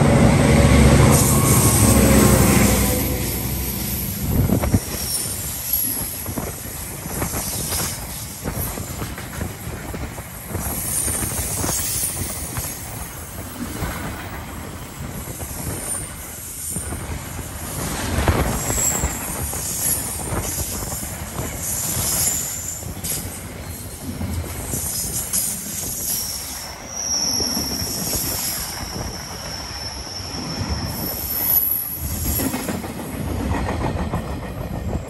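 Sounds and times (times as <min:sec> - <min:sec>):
freight train rumbling past: 0:00.0 - 0:35.0
high-pitched wheel squeals: 0:01.0 - 0:04.3, 0:26.0 - 0:32.4.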